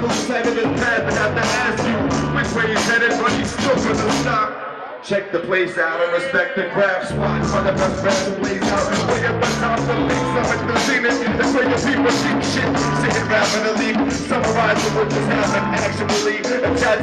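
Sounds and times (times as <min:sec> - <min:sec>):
drums with cymbal hits: 0:00.0 - 0:04.3, 0:07.5 - 0:17.0
low bass line: 0:00.7 - 0:02.8, 0:07.1 - 0:10.8, 0:11.5 - 0:13.4, 0:14.1 - 0:16.1.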